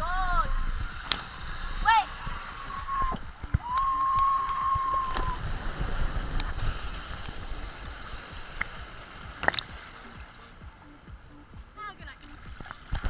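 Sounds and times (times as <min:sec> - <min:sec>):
rushing water: 0:00.0 - 0:13.0
wind noise: 0:00.0 - 0:13.0
knocks and splashes: 0:00.7 - 0:10.8, 0:12.2 - 0:13.0
high whistle-like tone: 0:02.5 - 0:05.5.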